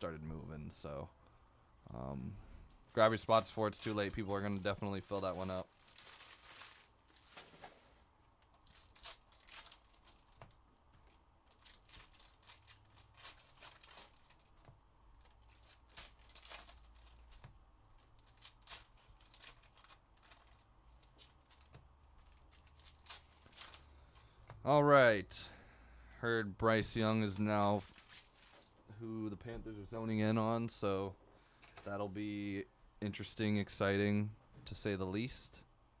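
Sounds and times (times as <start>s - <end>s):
foil wrappers crinkling and tearing: 2.8s - 7.8s, 8.4s - 24.4s, 26.8s - 28.8s.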